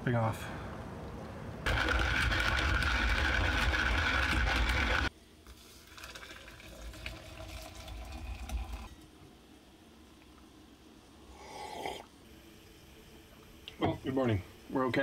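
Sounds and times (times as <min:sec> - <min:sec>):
kettle whistling: 0:01.7 - 0:05.1
hot water pouring: 0:01.7 - 0:09.0.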